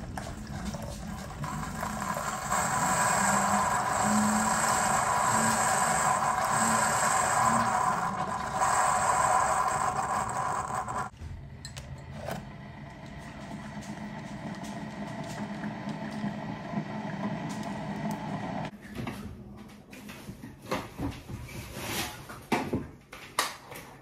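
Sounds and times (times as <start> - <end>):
coffee maker pump and hiss: 0.0 - 11.2.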